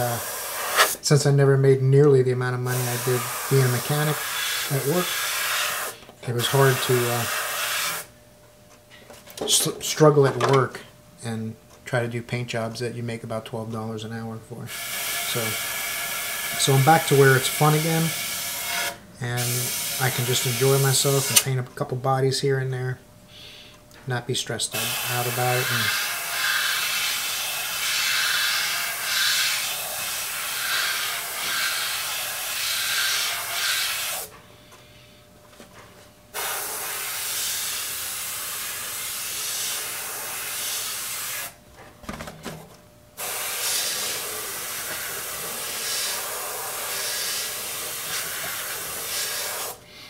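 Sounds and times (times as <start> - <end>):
airbrush hissing: 0.0 - 1.0, 2.7 - 8.1, 14.7 - 21.4, 24.7 - 34.3, 36.4 - 41.6, 43.2 - 49.8.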